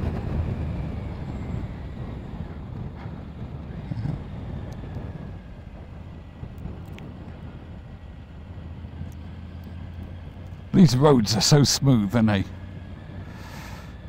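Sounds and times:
motorcycle engine running: 0.0 - 10.8
road noise: 0.0 - 14.0
wind noise: 0.0 - 14.0.

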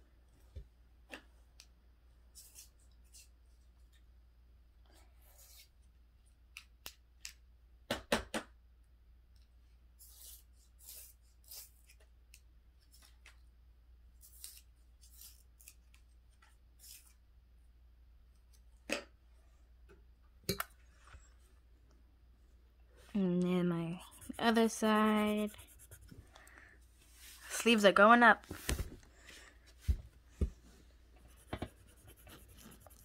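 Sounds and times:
marker scratching on paper: 10.0 - 11.7, 23.8 - 26.3, 31.2 - 33.0.

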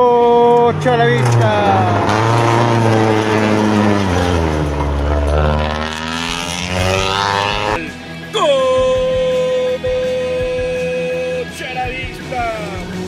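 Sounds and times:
rally car engine passing: 0.0 - 8.0
music with sweeping tone: 3.5 - 13.0.

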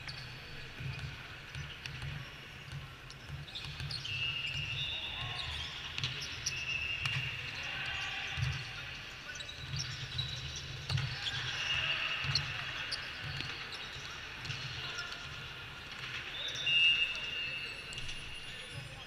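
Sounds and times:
sneaker squeaks: 0.0 - 19.0
volleyballs struck and bouncing: 0.1 - 4.8, 9.7 - 11.6.

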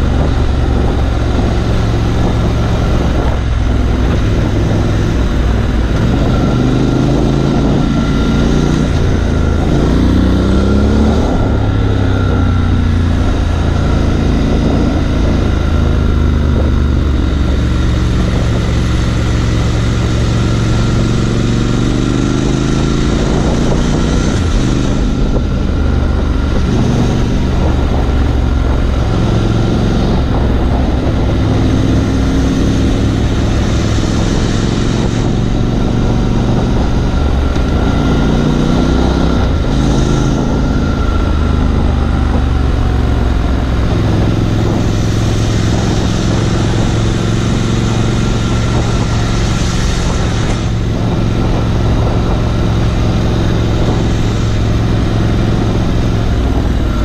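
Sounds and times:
motorcycle engine running: 0.0 - 57.0
wind rush on microphone: 0.0 - 57.0.

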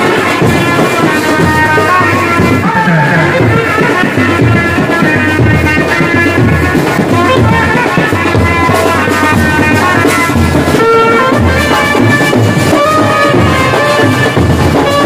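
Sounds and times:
side drums: 0.0 - 15.0
trumpets playing melody: 0.0 - 15.0.

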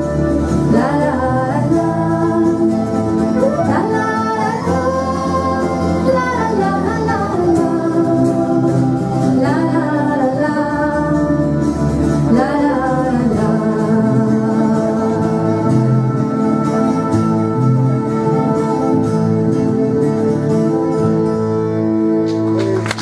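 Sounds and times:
woman singing: 0.0 - 16.4
held instrumental accompaniment: 0.0 - 23.0.

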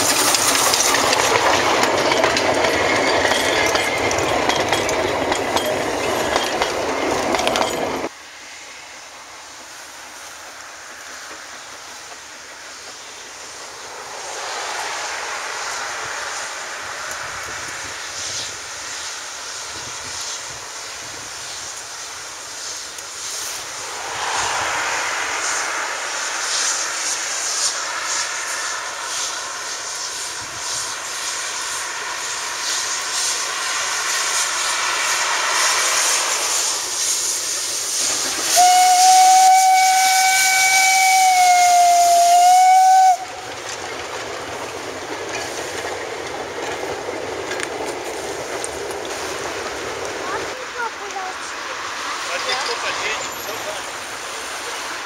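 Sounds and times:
steam locomotive hissing: 0.0 - 55.0
steam whistle blast: 38.5 - 43.4.

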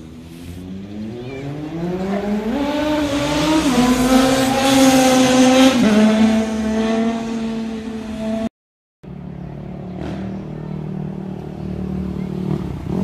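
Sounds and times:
motorcycle engine revving past: 0.5 - 8.5, 9.9 - 13.0.

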